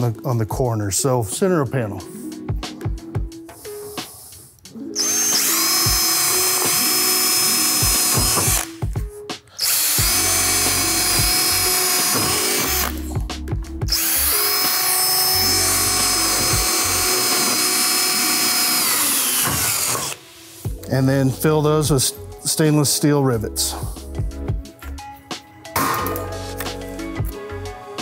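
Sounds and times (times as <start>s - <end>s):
cordless drill boring metal: 5.0s - 8.7s, 9.6s - 13.2s, 13.9s - 20.2s.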